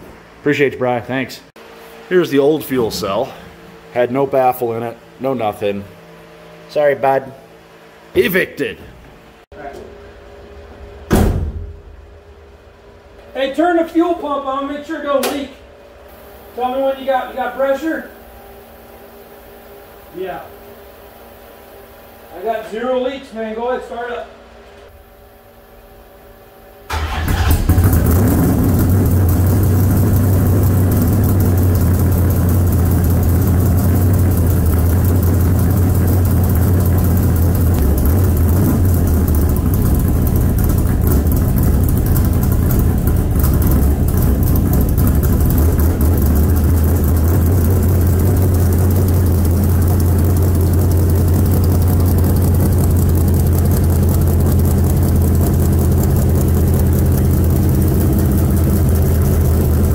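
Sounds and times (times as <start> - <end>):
car engine starting and idling: 26.9 - 59.9.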